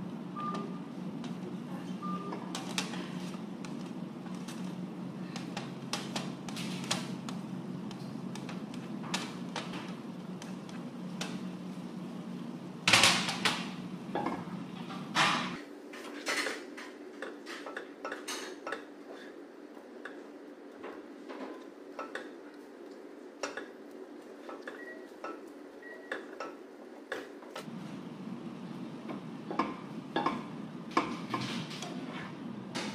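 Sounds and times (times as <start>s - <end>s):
steady low hum: 0.0s - 15.6s, 27.6s - 32.9s.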